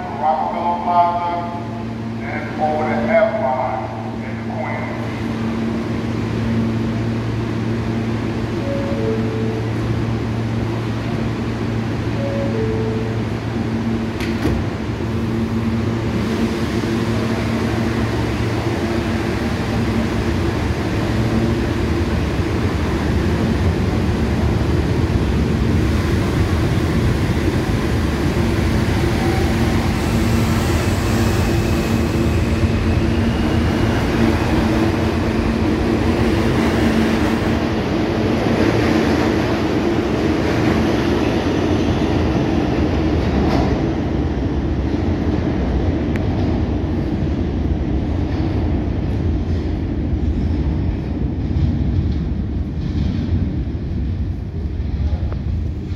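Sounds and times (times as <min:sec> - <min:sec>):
subway train rumbling on rails: 0:00.0 - 0:55.9
train motor hum: 0:03.4 - 0:41.4.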